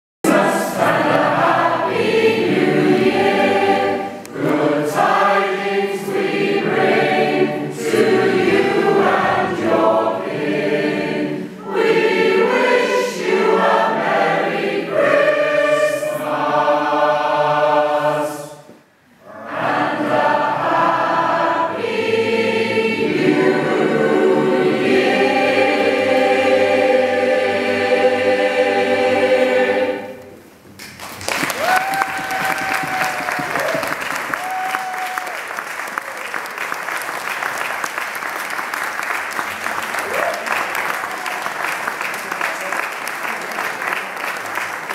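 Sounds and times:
mixed choir singing: 0.2s - 30.4s.

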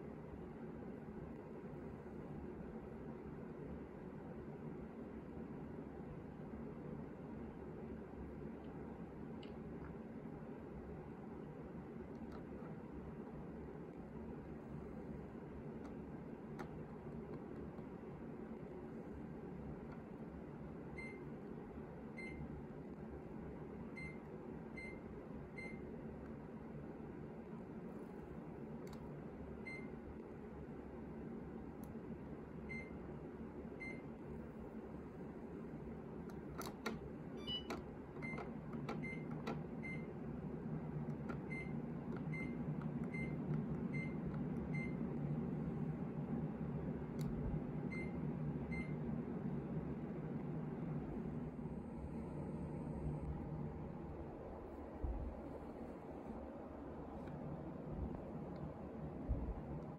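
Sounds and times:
low background hum: 0.0s - 59.9s
short high beeps: 37.4s - 37.7s.

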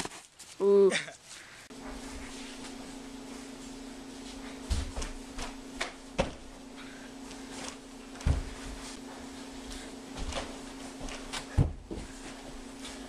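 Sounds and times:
steady low hum: 1.3s - 13.0s
thumps on a cushioned couch: 8.2s - 8.9s, 10.2s - 12.2s.

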